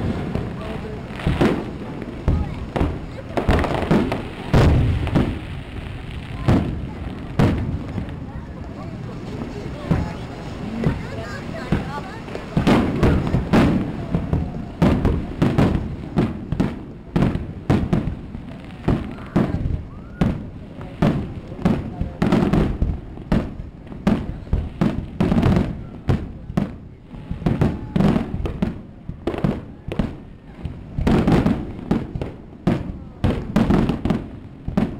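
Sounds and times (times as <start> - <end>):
fireworks bursting: 0.0 - 34.9.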